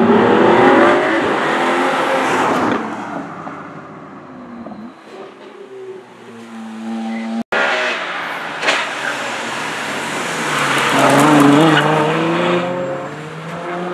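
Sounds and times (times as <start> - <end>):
sports car accelerating away: 9.1 - 13.9.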